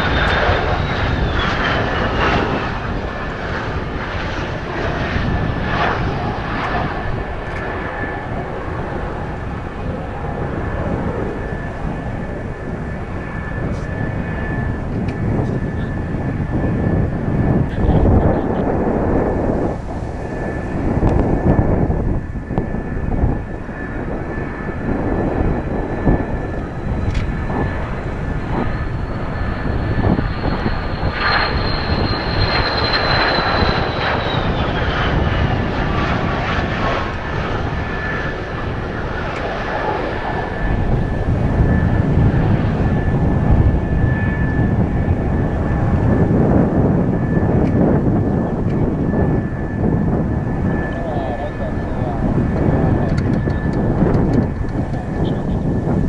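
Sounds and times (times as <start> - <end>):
jet whine: 0.0 - 56.0
wind buffeting microphone: 0.0 - 56.0.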